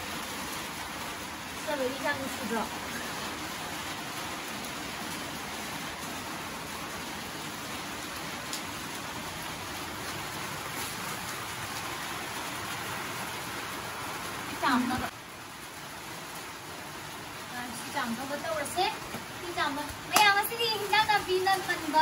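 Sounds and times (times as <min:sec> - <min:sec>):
rain falling on wet ground: 0:00.0 - 0:22.0.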